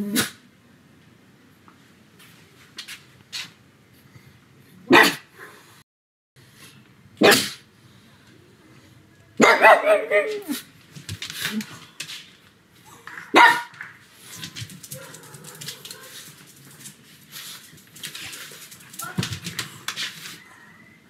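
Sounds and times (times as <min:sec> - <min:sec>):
dog barking: 0:04.9 - 0:05.3, 0:07.2 - 0:07.6, 0:09.4 - 0:10.6, 0:13.3 - 0:13.7, 0:14.9 - 0:16.3.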